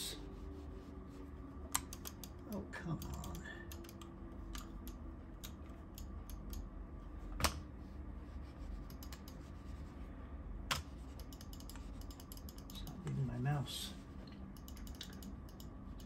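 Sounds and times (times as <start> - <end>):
steady low hum: 0.0 - 16.0
computer keys clicking: 1.7 - 6.7, 8.9 - 9.4, 10.7 - 13.3, 14.3 - 16.0.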